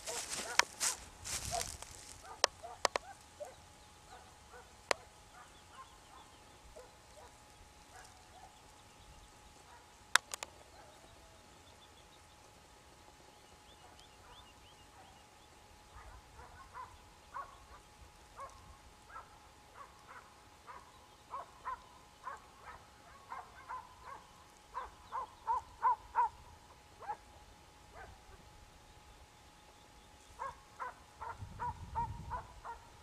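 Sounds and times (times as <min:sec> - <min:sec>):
distant hound baying: 0:00.0 - 0:08.6, 0:15.9 - 0:17.8, 0:18.4 - 0:26.4, 0:30.4 - 0:33.0.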